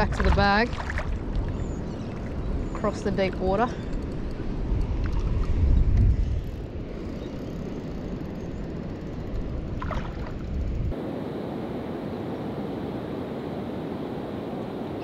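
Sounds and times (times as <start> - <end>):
waves washing: 0.0 - 1.6, 9.6 - 15.0
wind rumbling on microphone: 0.0 - 15.0.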